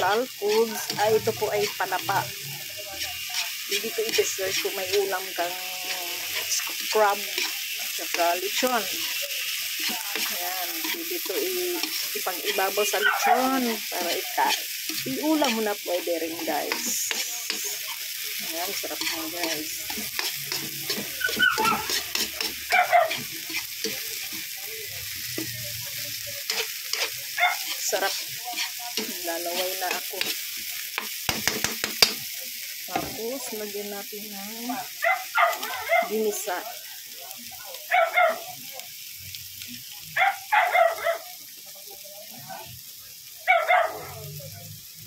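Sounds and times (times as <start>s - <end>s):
metal spatula scraping wok: 0.0s - 32.2s
oil sizzling in wok: 0.0s - 45.0s
dog barking: 13.0s - 13.6s, 21.2s - 21.9s, 22.7s - 23.2s, 27.4s - 27.7s, 35.0s - 36.2s, 37.9s - 38.5s, 40.2s - 41.3s, 43.4s - 44.3s.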